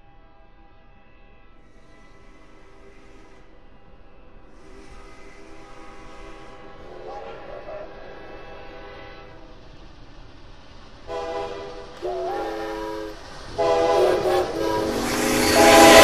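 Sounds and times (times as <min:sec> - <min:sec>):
approaching train rumble: 0:00.0 - 0:16.0
train horns sounding: 0:04.6 - 0:09.6, 0:11.1 - 0:16.0.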